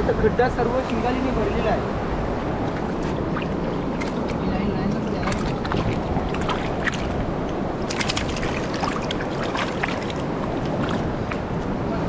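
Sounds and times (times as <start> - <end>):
surf rushing: 0.0 - 12.0
wind: 0.0 - 12.0
fish splashing in water: 2.6 - 11.9.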